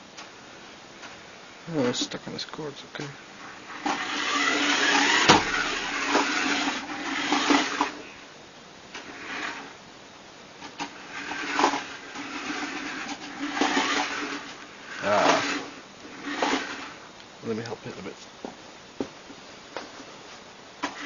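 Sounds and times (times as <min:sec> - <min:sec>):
steady low hum: 0:00.0 - 0:21.0
toy car motor whirring: 0:03.4 - 0:08.0, 0:09.0 - 0:09.7, 0:10.7 - 0:17.0, 0:20.8 - 0:21.0.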